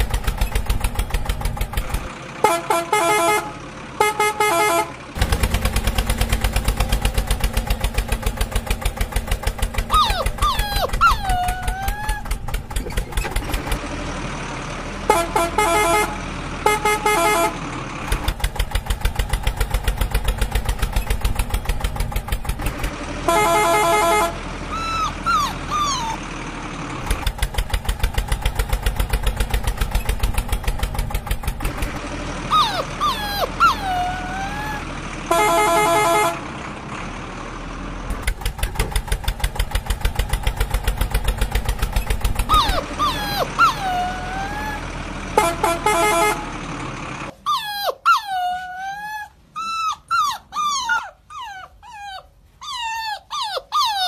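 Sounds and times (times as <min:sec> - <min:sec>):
tractor engine chugging: 0:00.0 - 0:47.4
vehicle horn blasts: 0:02.4 - 0:04.9, 0:15.1 - 0:17.6, 0:23.2 - 0:24.4, 0:35.3 - 0:36.4, 0:45.4 - 0:46.5
puppy whining: 0:09.8 - 0:13.4, 0:24.7 - 0:26.2, 0:32.5 - 0:34.9, 0:42.4 - 0:44.9, 0:47.4 - 0:54.0.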